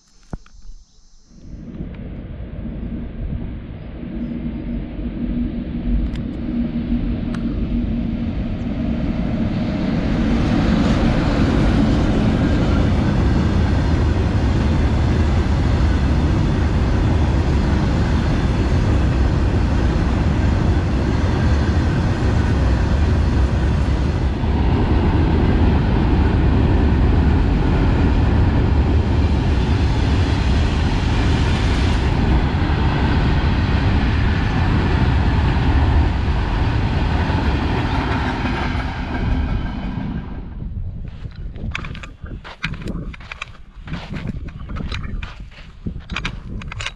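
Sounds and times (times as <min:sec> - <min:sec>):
freight train wheels rumbling: 0:01.6 - 0:46.9.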